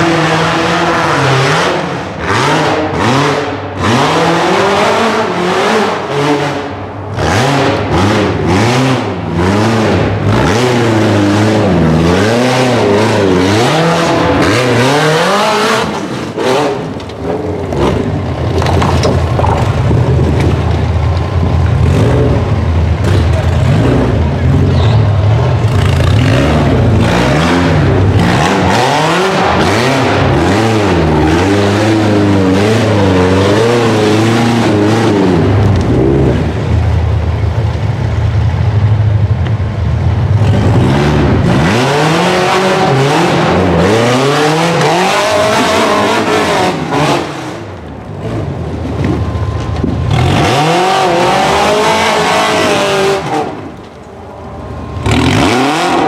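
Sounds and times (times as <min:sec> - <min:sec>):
engine revving hard: 0:00.0 - 0:17.0, 0:21.8 - 0:36.6, 0:40.4 - 0:48.5, 0:50.1 - 0:53.7, 0:55.0 - 0:56.0.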